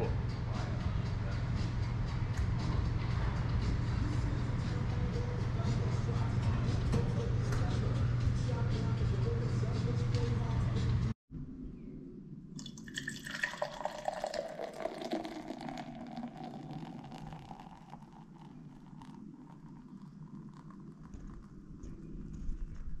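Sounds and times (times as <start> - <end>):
beer pouring into a glass: 12.6 - 21.5
foam fizzing: 12.7 - 21.4.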